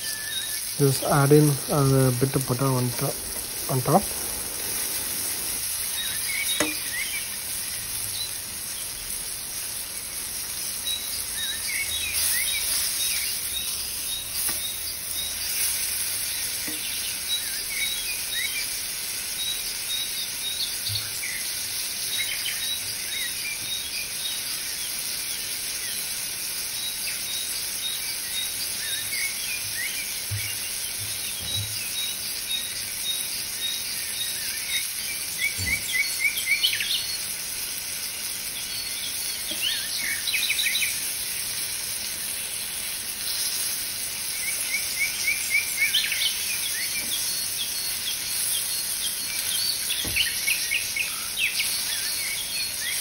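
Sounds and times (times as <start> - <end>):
bird chirps: 0.0 - 7.4, 26.8 - 37.3, 38.5 - 41.0, 44.4 - 53.0
chicken frying in a pan: 0.0 - 53.0.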